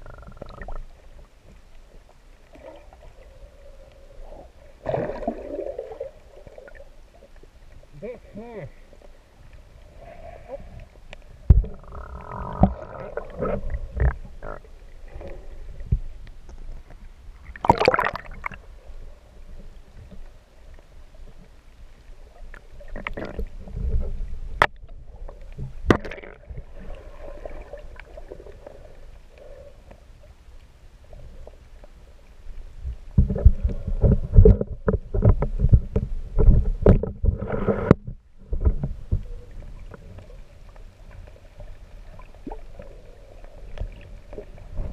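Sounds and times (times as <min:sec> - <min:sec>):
water sloshing and gurgling: 0:00.0 - 0:44.9
sharp knocks and splashes: 0:17.6 - 0:18.6, 0:25.8 - 0:26.5.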